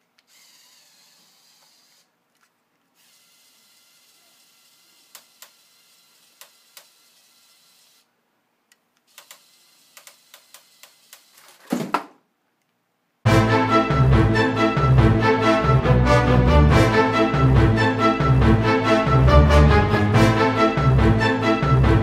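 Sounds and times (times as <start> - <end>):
toy motor mechanism clicking: 0.1 - 8.1, 9.0 - 11.6.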